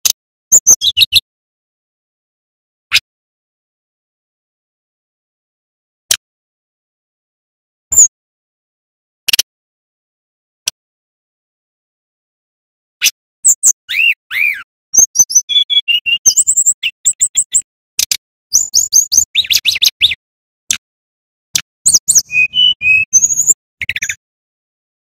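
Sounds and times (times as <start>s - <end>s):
bird singing whistled notes: 0.5s - 1.2s, 13.4s - 17.7s, 18.5s - 20.2s, 21.9s - 24.2s.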